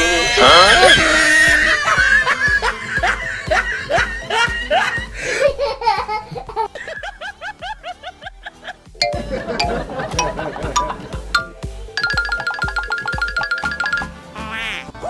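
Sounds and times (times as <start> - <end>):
background music with beat: 6.0 - 14.4.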